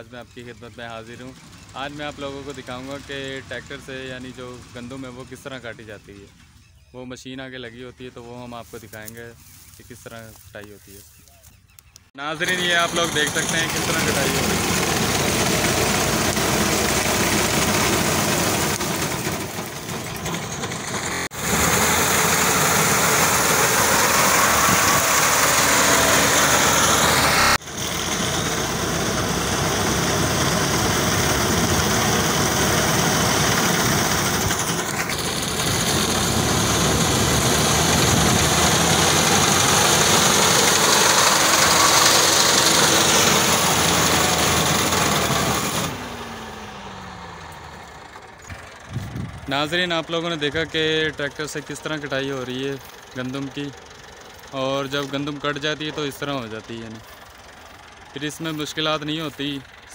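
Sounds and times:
tractor diesel engine running: 0.0 - 59.9
reaper cutting wheat: 8.6 - 11.5, 12.4 - 46.7.

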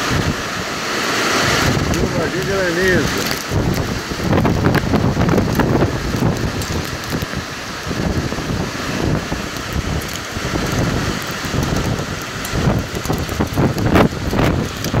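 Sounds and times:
heavy rain and hail: 0.0 - 15.0
wind buffeting microphone: 0.0 - 15.0.

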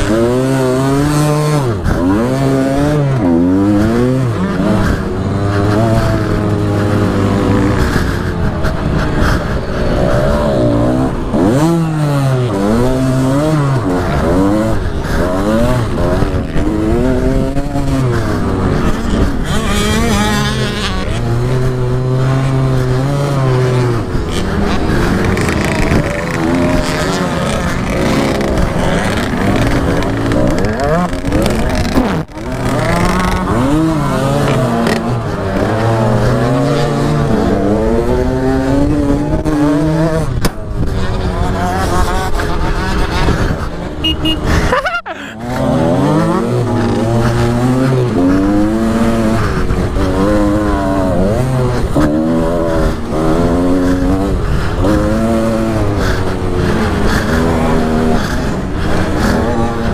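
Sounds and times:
wind noise on microphone: 0.0 - 45.0
two-stroke motorbike engine revving: 0.0 - 59.9.

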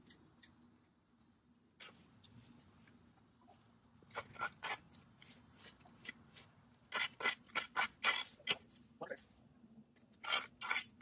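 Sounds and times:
rake scraping dirt and grass: 4.0 - 8.9, 10.2 - 11.0.

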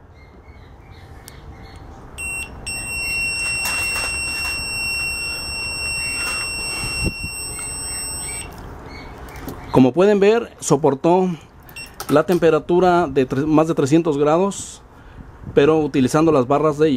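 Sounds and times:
multimeter continuity beep: 2.2 - 8.6, 11.7 - 12.1
test leads clicking: 2.2 - 8.6.

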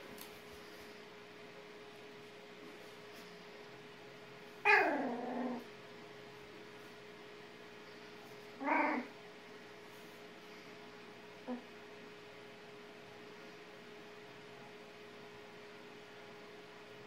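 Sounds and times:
puppy yelping: 4.6 - 5.7, 8.6 - 9.1.

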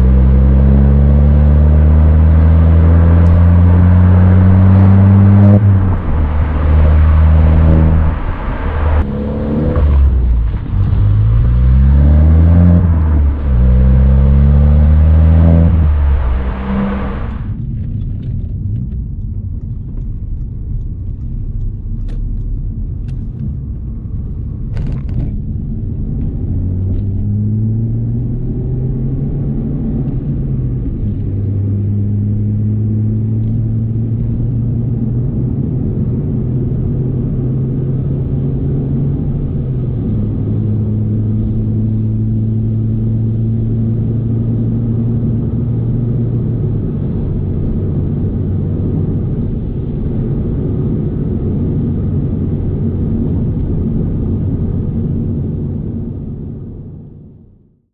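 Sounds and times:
droning exhaust note: 0.0 - 17.6
road rumble inside car: 0.0 - 57.9.

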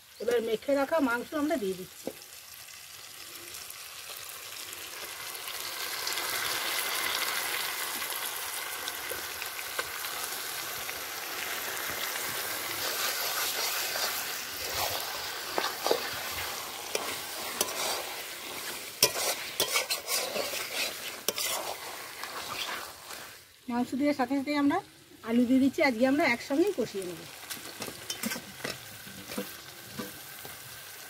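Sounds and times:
chicken sizzling in hot oil: 0.0 - 31.0
metal spatula scraping and clinking: 13.0 - 23.0, 28.0 - 30.2.

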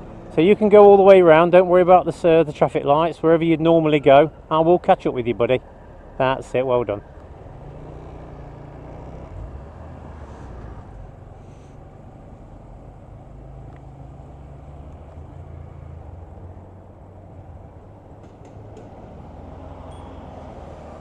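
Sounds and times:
road and wind noise: 0.0 - 21.0
small motorcycle engine: 7.6 - 10.1.

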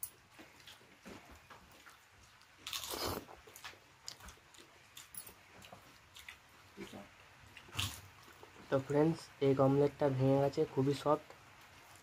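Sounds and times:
person chewing soft food: 0.2 - 8.7
loud noisy bite: 2.6 - 3.4.

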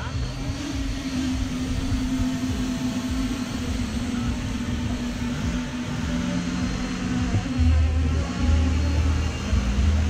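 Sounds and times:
model helicopter whirring: 0.0 - 10.0.

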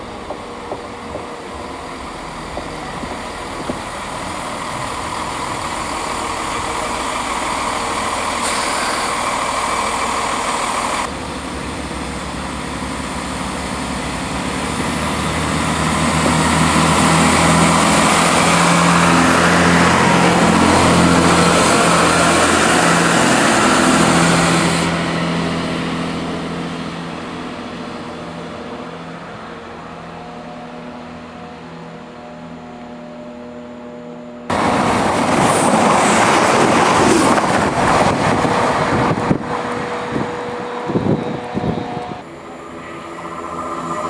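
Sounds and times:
diesel train engines: 0.0 - 44.0.

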